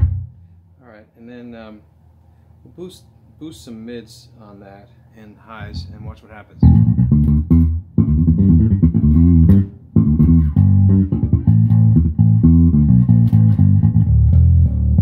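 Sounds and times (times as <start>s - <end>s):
fretless bass guitar playing: 0.0s - 0.8s, 5.6s - 15.0s.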